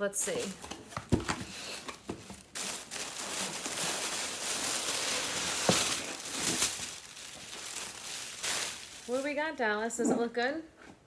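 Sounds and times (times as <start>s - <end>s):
plastic bag rustling: 0.2s - 9.6s.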